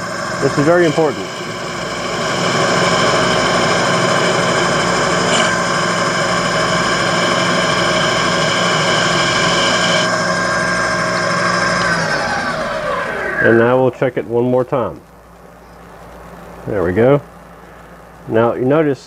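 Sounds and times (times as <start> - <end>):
lathe motor whining: 0.0 - 13.9
lathe spinning down: 0.0 - 14.0.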